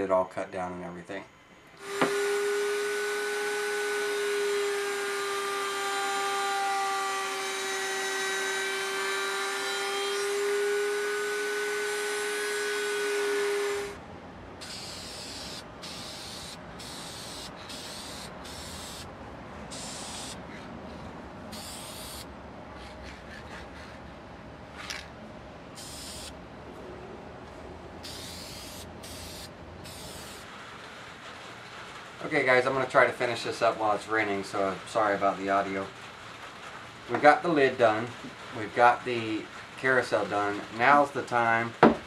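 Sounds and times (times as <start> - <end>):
router high whine: 1.2 - 14.0, 14.6 - 19.1
aerosol spray can hissing: 14.6 - 19.1, 19.7 - 20.4, 21.5 - 22.3, 25.8 - 26.4, 28.0 - 30.5.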